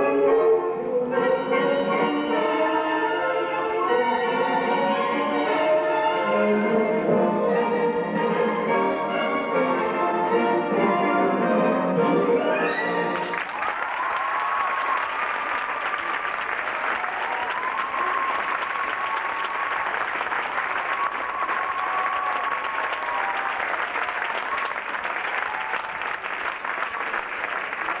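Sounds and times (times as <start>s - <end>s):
audience applauding: 13.0s - 28.0s.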